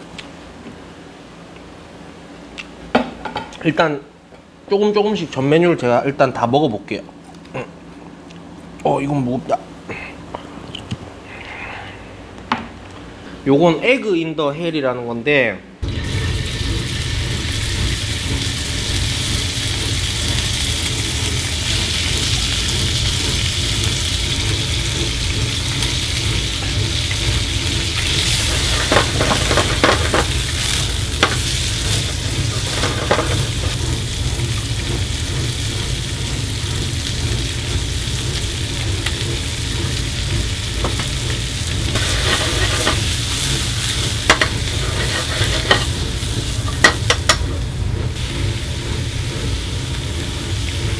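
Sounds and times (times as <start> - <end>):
meat sizzling in a frying pan: 15.8 - 47.4.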